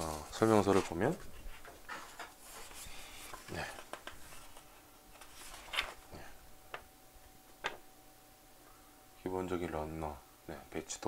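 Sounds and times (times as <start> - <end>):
paper rustling: 0.0 - 6.1.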